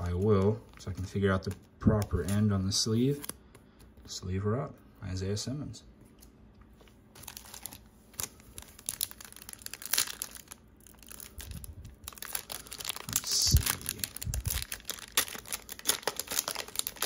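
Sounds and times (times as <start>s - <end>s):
foil wrapper tearing and crinkling: 7.2s - 17.0s.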